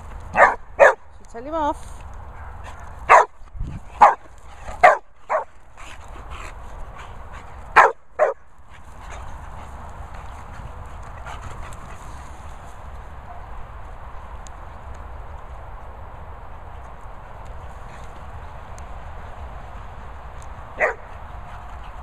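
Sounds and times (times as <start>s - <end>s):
dog barking: 0.4s - 1.0s, 2.4s - 3.4s, 4.0s - 4.2s, 4.8s - 5.5s, 7.8s - 8.4s, 20.8s - 21.1s.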